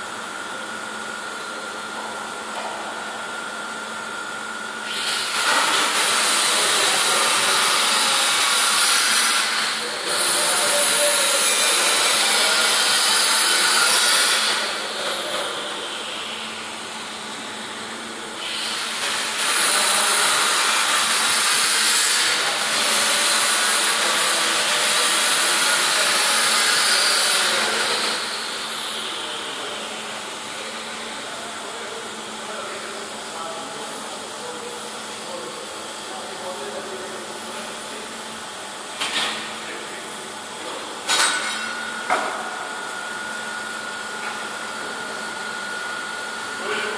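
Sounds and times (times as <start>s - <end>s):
welding arc hissing: 4.8s - 15.3s, 18.4s - 29.2s.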